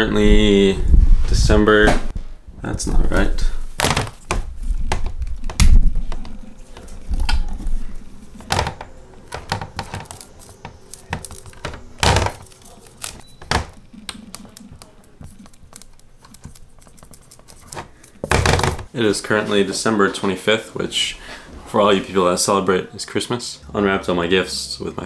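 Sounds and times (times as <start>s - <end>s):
marker writing on whiteboard: 13.9s - 17.9s.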